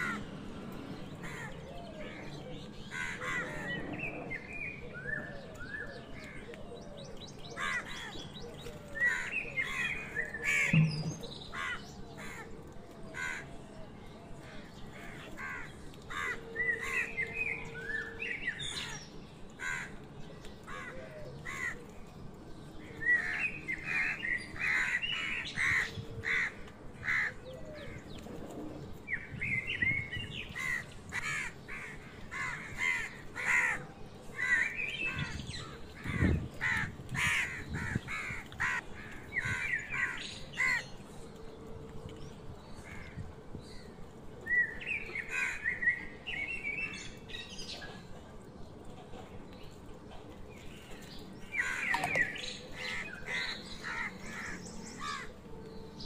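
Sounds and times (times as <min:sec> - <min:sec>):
crows cawing: 0:00.0 - 0:00.3, 0:01.2 - 0:02.2, 0:02.8 - 0:03.7, 0:11.5 - 0:12.5, 0:19.6 - 0:20.0, 0:20.7 - 0:21.8, 0:23.8 - 0:27.8, 0:30.6 - 0:40.8, 0:45.3 - 0:45.6, 0:51.5 - 0:55.4
small birds chirping: 0:00.0 - 0:12.6.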